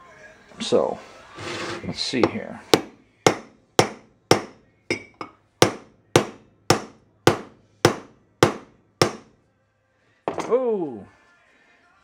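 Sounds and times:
hammer striking steel bolt: 2.8 - 9.3.

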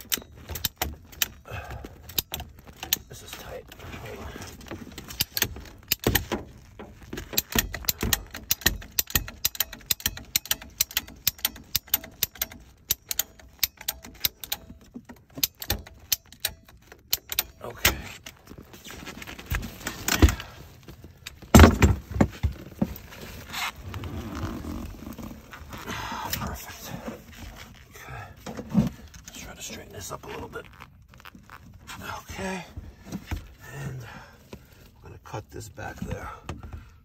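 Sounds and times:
tube bender metallic clicks: 7.3 - 17.6.

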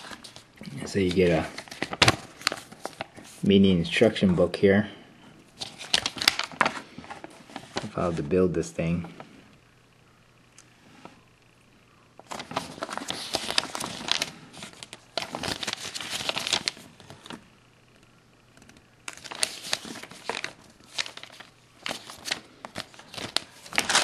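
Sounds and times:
packaging crinkling: 0.0 - 3.4, 5.6 - 8.2, 12.2 - 17.4, 18.6 - 24.0.

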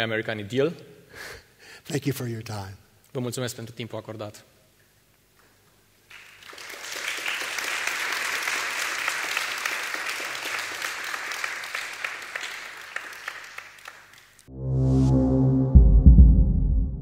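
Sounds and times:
audience applauding: 6.1 - 14.5.

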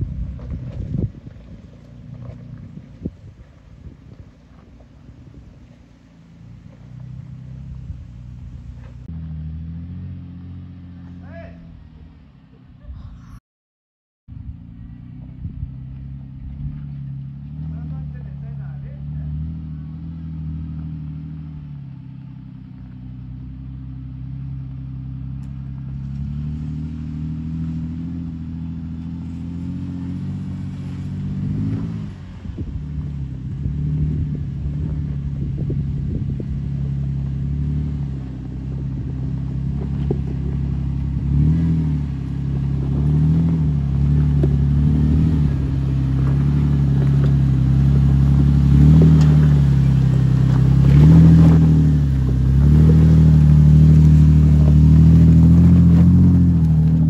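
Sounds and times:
engine pulling uphill in low gear: 0.0 - 13.2, 14.3 - 57.0
engine revving: 5.2 - 11.8, 14.7 - 57.0
clatter: 33.9 - 57.0.

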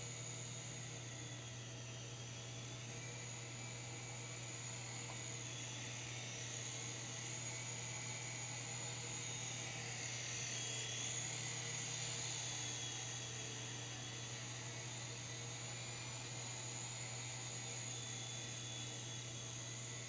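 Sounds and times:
toy helicopter rotors whining: 4.1 - 16.9.

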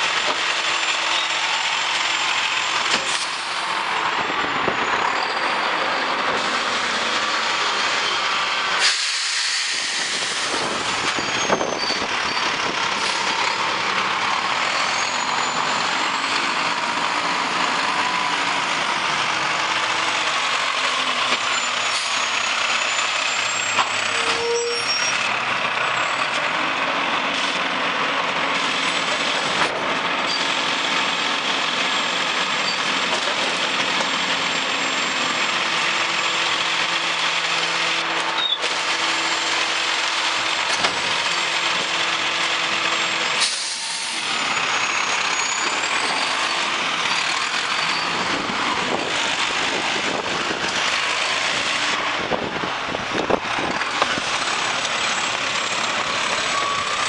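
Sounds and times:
diesel truck engine running: 0.0 - 57.0
air brake clicks and hisses: 2.9 - 3.7, 8.8 - 11.7, 43.4 - 44.4.

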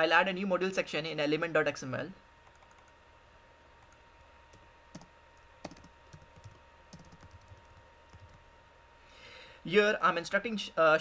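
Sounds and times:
computer keys clicking: 2.4 - 2.9, 3.8 - 8.4.

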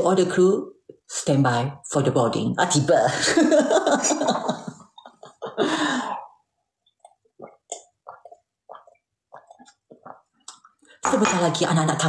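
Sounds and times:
woman laughing: 3.1 - 6.1
gulps and swallows: 5.9 - 11.0.

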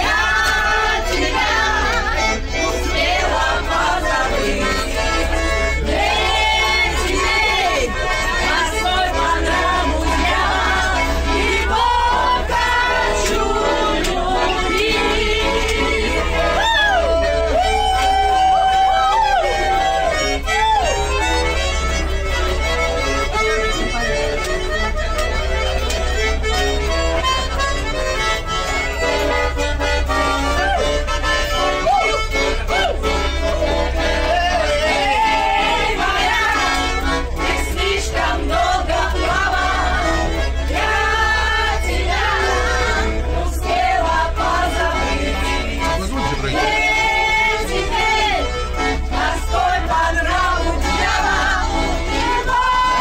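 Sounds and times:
people singing along: 0.0 - 20.3, 34.2 - 53.0
accordion: 0.0 - 53.0.

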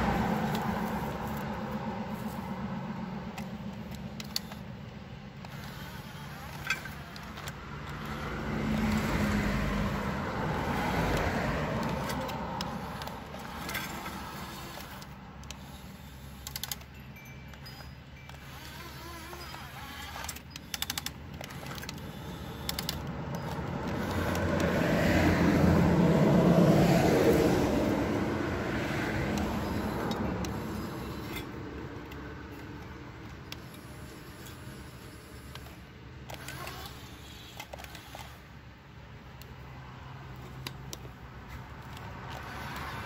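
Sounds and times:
vehicle driving past: 0.0 - 4.6, 5.5 - 15.8, 22.4 - 35.5
low traffic hum: 0.0 - 43.0.

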